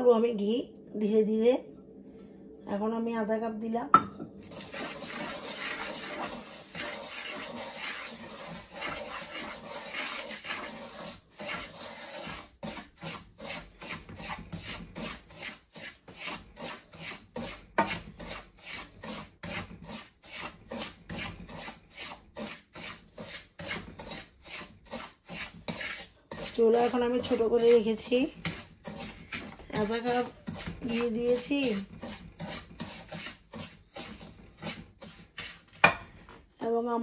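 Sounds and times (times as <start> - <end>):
wooden spatula scraping a wok: 4.4 - 37.0.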